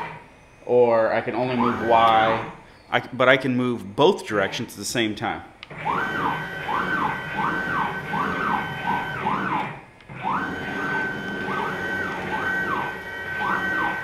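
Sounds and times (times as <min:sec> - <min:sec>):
stepper motors whining: 0:00.0 - 0:02.8, 0:05.6 - 0:14.0.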